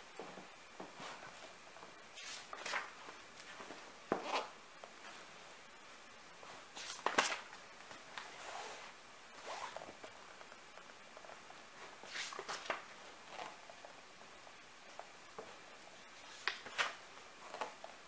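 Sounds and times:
paper pages rustling: 0:02.2 - 0:05.2, 0:06.4 - 0:08.8, 0:11.2 - 0:13.6, 0:16.2 - 0:17.9.

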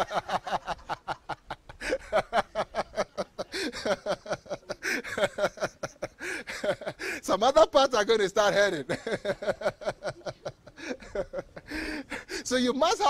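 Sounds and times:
man laughing: 0:00.0 - 0:07.2, 0:08.6 - 0:13.0.

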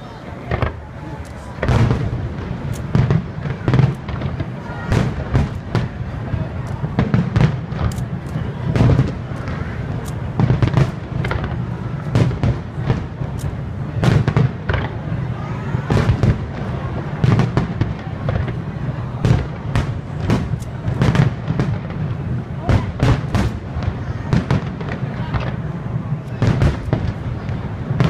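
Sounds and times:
firework shells bursting: 0:00.5 - 0:15.0.

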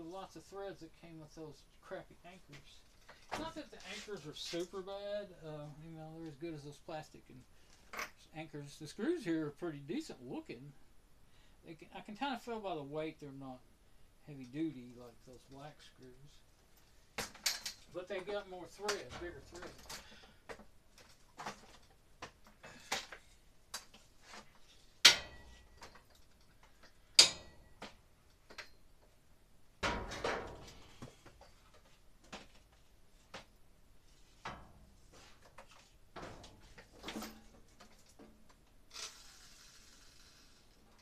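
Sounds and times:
rough scraping sound: 0:38.9 - 0:40.7.

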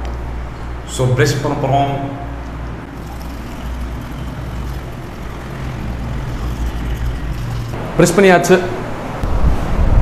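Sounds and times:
low background rumble: 0:02.4 - 0:08.0
toothbrush scrubbing teeth: 0:02.9 - 0:07.8.

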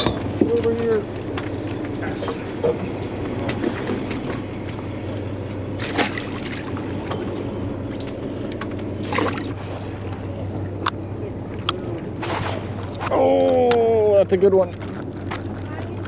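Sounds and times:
knocks and splashes: 0:00.0 - 0:10.2
boat engine humming: 0:00.0 - 0:16.0
water sloshing: 0:00.0 - 0:16.0.

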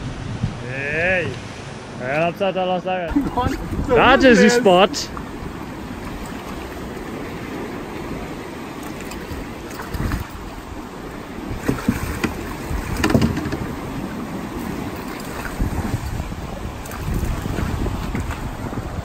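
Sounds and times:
water rushing: 0:00.0 - 0:19.0
wind: 0:00.0 - 0:19.0.

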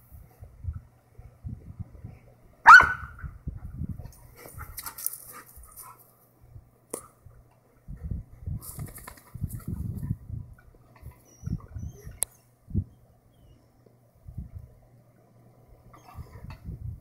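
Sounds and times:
dog barking: 0:02.6 - 0:03.2.

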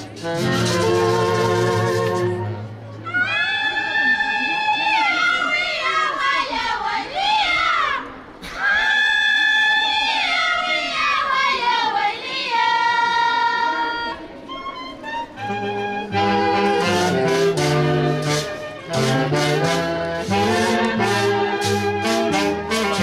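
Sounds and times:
band music with brass: 0:00.0 - 0:02.8, 0:15.0 - 0:23.0.

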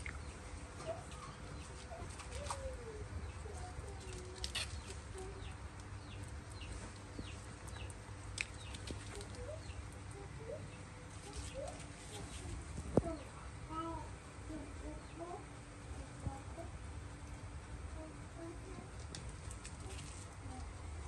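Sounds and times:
animal chirps and squeaks: 0:00.8 - 0:05.6.

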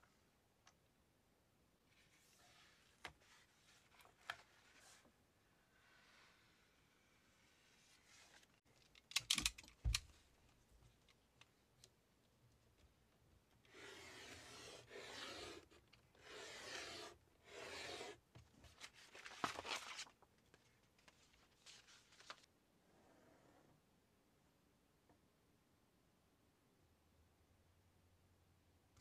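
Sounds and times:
paper crackling: 0:18.6 - 0:22.5.

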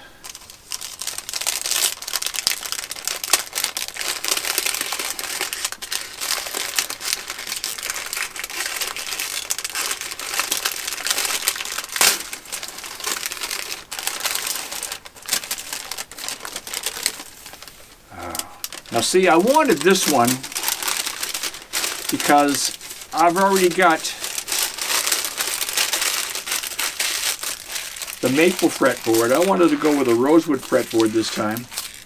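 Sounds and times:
packing wrap crinkling: 0:00.1 - 0:32.0.

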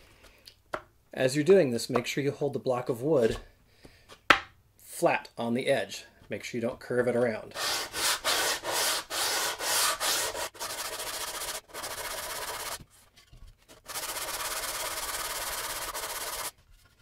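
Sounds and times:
sandpaper rubbing on wood: 0:07.6 - 0:12.8, 0:13.8 - 0:16.5.

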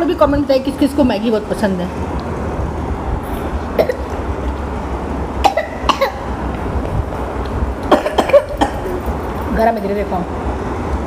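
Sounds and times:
steady low hum: 0:00.0 - 0:11.0
child coughing: 0:03.8 - 0:04.1, 0:05.4 - 0:06.3, 0:07.9 - 0:09.0.

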